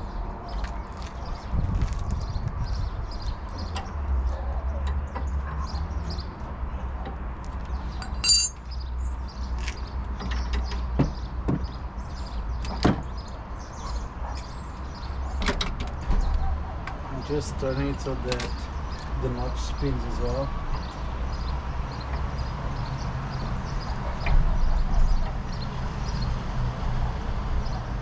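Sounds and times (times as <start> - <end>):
metal tools clinking: 8.0 - 8.7.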